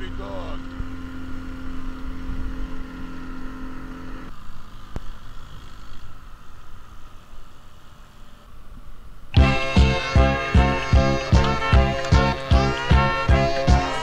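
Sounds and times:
water and wind rumble: 0:00.0 - 0:09.6
motorboat engine humming: 0:00.0 - 0:14.0.

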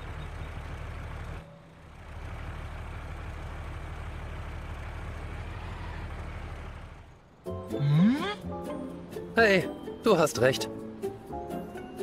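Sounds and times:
cartoon truck engine running: 0:00.0 - 0:08.4.

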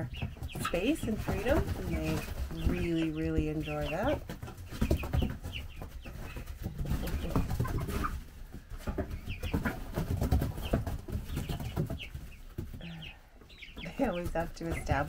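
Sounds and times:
young chickens chirping and clucking: 0:00.0 - 0:15.0
scratching in wood shavings: 0:00.6 - 0:08.3.

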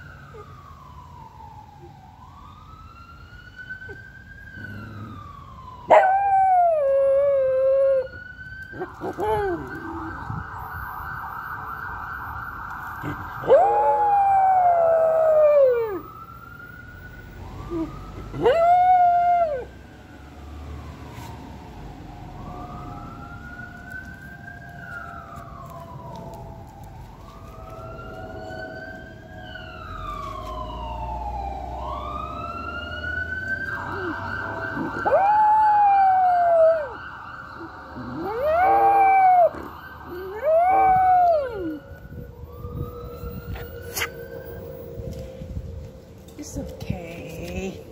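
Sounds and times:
ambulance siren wailing: 0:00.0 - 0:47.9
dog howling: 0:05.9 - 0:08.1, 0:13.4 - 0:16.0, 0:33.8 - 0:37.0, 0:37.6 - 0:41.8.

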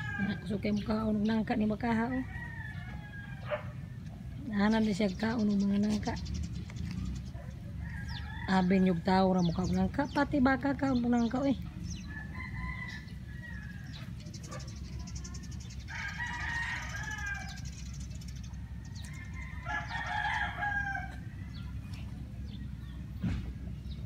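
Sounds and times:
rooster crowing: 0:02.2 - 0:03.8, 0:12.0 - 0:14.0, 0:15.9 - 0:17.7, 0:18.6 - 0:21.7.

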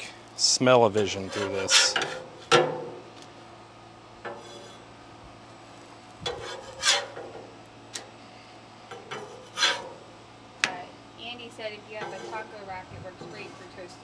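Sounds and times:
faint steady hum: 0:00.0 - 0:14.0
metal spatula scraping griddle: 0:01.0 - 0:02.6, 0:04.2 - 0:04.9, 0:06.2 - 0:07.3, 0:08.9 - 0:10.1, 0:11.8 - 0:14.0.

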